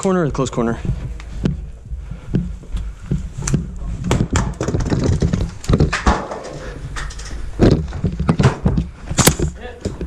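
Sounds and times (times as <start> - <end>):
boots stepping on hard floor: 0.6 - 6.7
gear knocking and rattling: 3.1 - 10.0.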